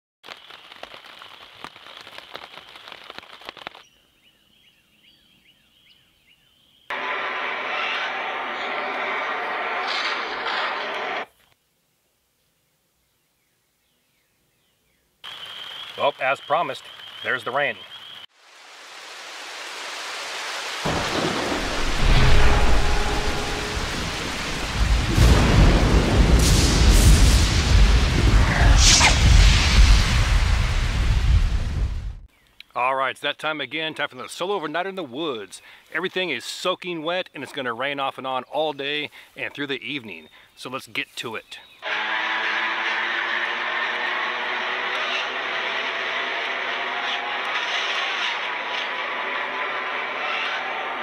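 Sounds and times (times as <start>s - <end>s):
steady rain hiss: 0.2s - 3.9s, 15.2s - 32.2s
crackling and popping noise: 0.2s - 4.0s, 18.2s - 32.7s
deep thunder rumble: 20.9s - 32.3s.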